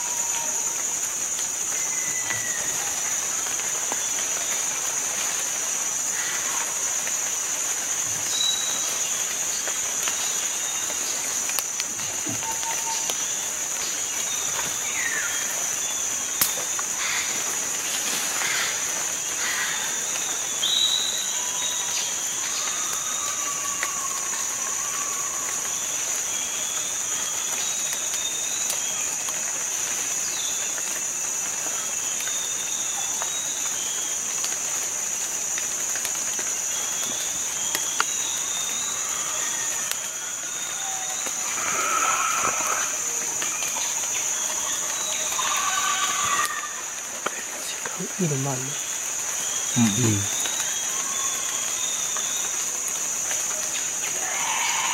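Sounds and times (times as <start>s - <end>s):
high-pitched insect drone: 34.4s - 54.9s.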